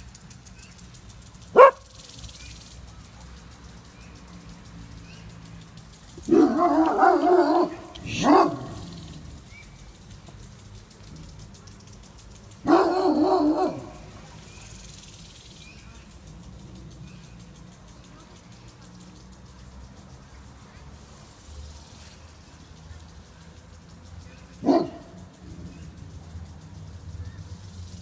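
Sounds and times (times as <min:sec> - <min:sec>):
dog barking: 0:01.5 - 0:01.9, 0:06.3 - 0:08.8, 0:12.6 - 0:14.0, 0:24.6 - 0:25.2.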